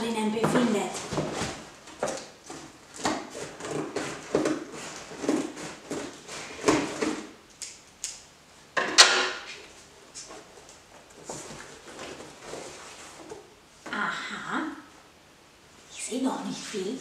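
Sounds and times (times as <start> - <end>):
cardboard rustling and scraping: 0.5 - 7.4, 9.7 - 13.5.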